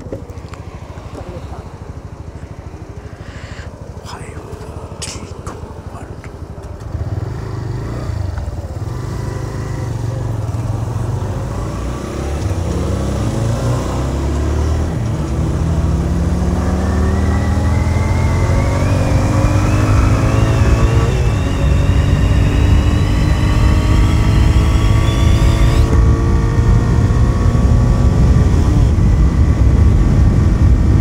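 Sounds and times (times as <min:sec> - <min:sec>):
motorcycle engine accelerating: 0:00.0 - 0:31.0.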